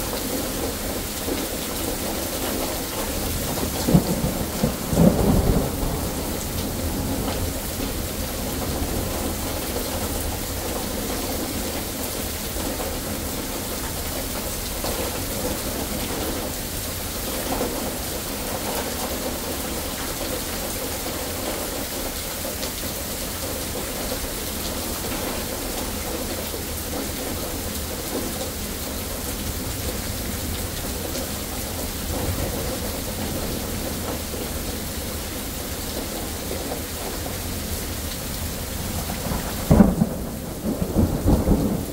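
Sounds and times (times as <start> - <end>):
steady rain falling: 0.0 - 41.9
low rumble of thunder: 2.0 - 10.7, 38.4 - 41.9.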